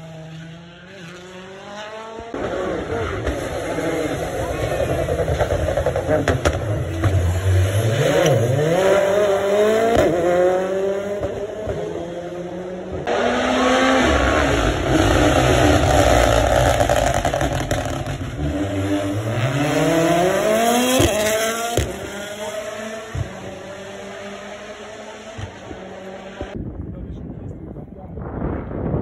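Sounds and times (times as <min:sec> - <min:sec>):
rally cars passing at speed: 0:00.0 - 0:26.6
engine revving through gears: 0:05.0 - 0:26.6.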